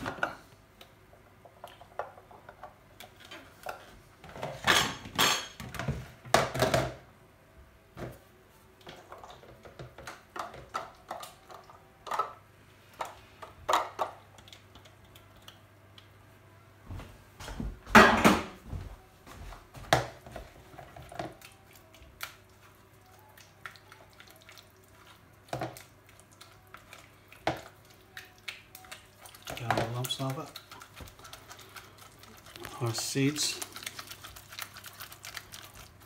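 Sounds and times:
plastic bowl clattering and knocking: 4.3s - 7.0s.

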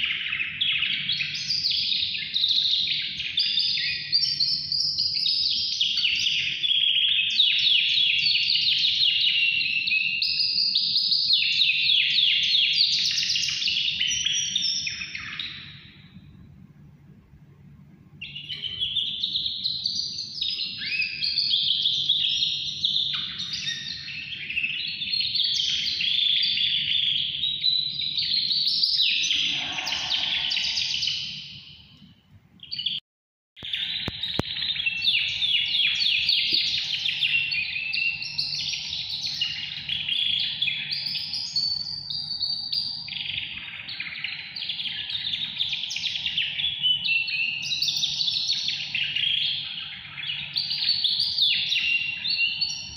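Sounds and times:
songbird warbling with trills: 28.0s - 31.4s.

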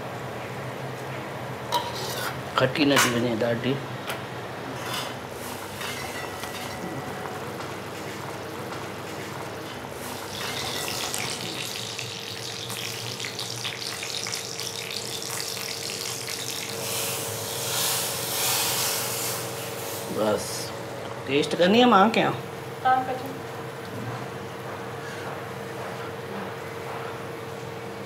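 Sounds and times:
hot oil poured into liquid: 10.0s - 19.4s
seeds sizzling in hot oil: 10.0s - 20.7s.

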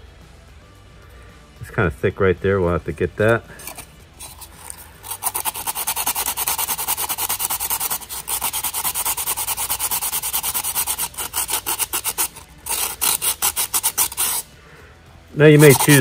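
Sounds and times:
sandpaper rasping by hand: 3.7s - 14.5s, 15.4s - 16.0s.

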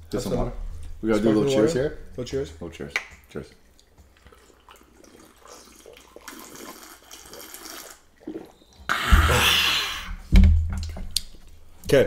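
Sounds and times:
sparkling water slurping and fizzing: 3.9s - 10.0s.

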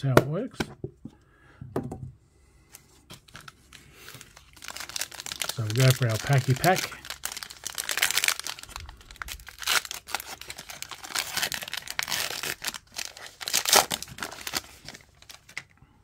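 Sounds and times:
foil wrapper tearing and crinkling: 3.3s - 15.7s.

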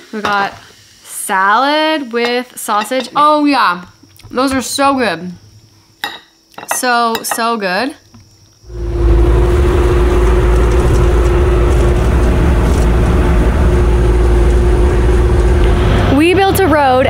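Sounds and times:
excavator diesel engine rumbling: 8.7s - 17.0s
steady engine tone: 8.7s - 17.0s.

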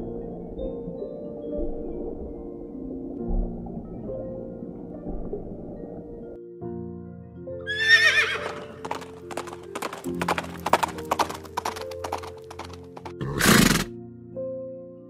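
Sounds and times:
soft background music: 0.0s - 15.0s
horse whinnying: 7.6s - 10.6s, 13.0s - 13.9s
hooves clip-clopping: 7.7s - 13.9s
horse snorting: 8.2s - 13.9s.

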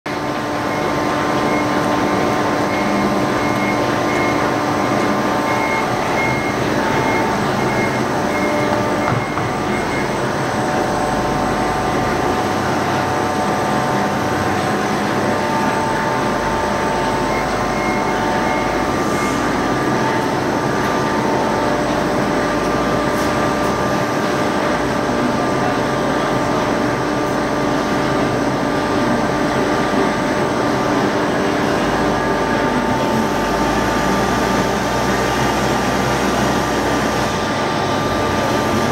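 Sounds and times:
forklift engine running: 0.1s - 38.9s
high beeping: 0.7s - 11.6s.

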